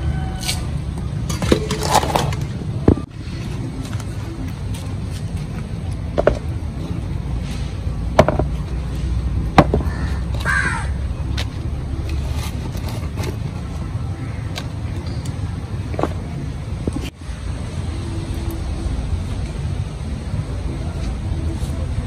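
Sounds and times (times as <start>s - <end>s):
bird cawing: 9.8s - 11.0s.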